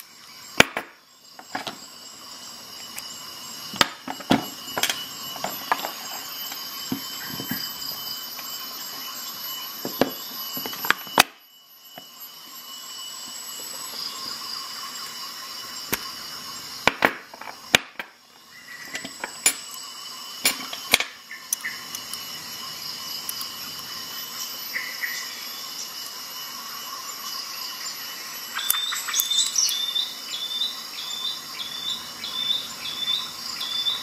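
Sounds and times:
steady background hiss: 0.0s - 34.0s
metal parts clicking on hard surface: 4.0s - 7.8s.

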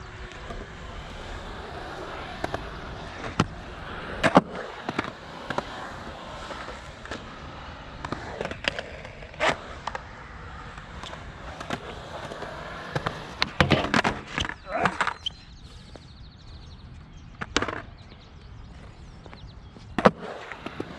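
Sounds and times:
skateboard wheels rolling on concrete: 0.0s - 20.9s
skateboard clacking against ground: 0.1s - 15.3s, 17.4s - 18.0s, 19.9s - 20.9s.

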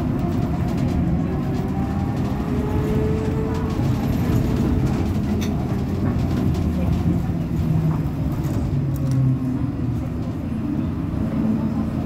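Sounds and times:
trolleybus humming: 0.0s - 12.0s.

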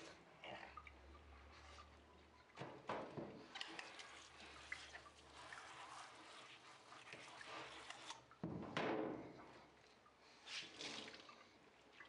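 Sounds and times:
wet towel rustling: 3.5s - 8.4s, 9.2s - 12.0s.

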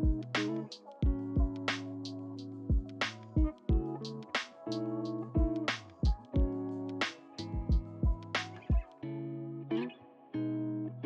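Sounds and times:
drum machine kick and snare: 0.0s - 1.8s, 2.7s - 4.6s, 5.4s - 8.9s
held bass and melody notes: 0.0s - 4.3s.

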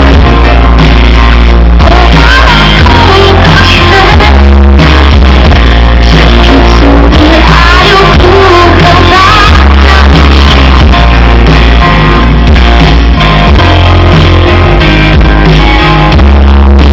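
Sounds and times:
heavy bass: 0.0s - 16.9s
live pop-rock band playing: 0.0s - 16.9s
woman singing lead: 1.8s - 11.8s.

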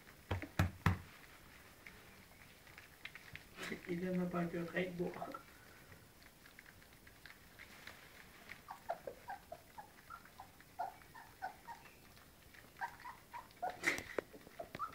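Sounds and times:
puppies squeaking and whimpering: 8.5s - 14.9s.

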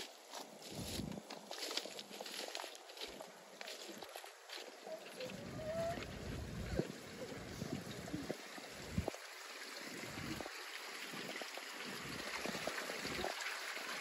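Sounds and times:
flowing river water: 0.0s - 14.0s
wind buffeting microphone: 0.6s - 1.3s, 5.2s - 13.4s.

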